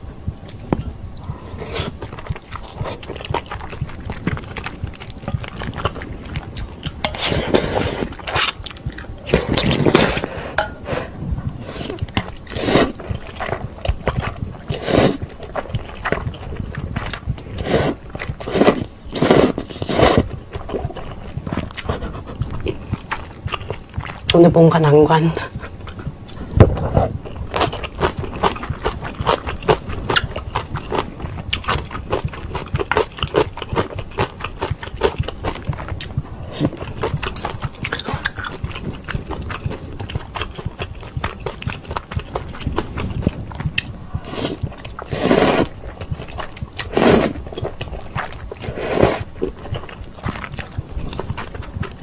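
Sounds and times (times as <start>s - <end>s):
wet chewing of noodles: 0.0s - 52.0s
loud noodle slurps: 11.7s - 13.0s, 14.7s - 15.2s, 17.6s - 20.2s, 44.3s - 45.8s, 46.8s - 47.4s, 48.6s - 49.3s
mouth clicks and smacks: 25.3s - 52.0s.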